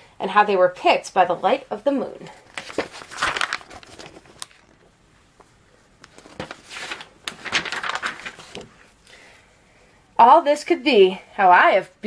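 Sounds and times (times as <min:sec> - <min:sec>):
book pages rustling: 0:02.4 - 0:09.0.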